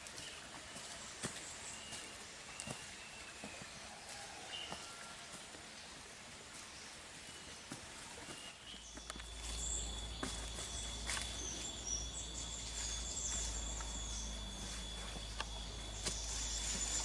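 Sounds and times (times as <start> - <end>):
birds chirping: 0.0 - 5.2, 5.8 - 17.0
footsteps on dry leaves: 7.8 - 17.0
high insect drone: 8.9 - 17.0.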